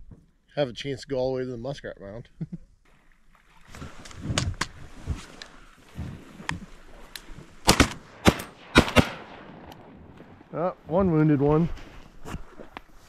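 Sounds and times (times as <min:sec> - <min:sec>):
shotgun blasts: 0:07.6 - 0:09.7.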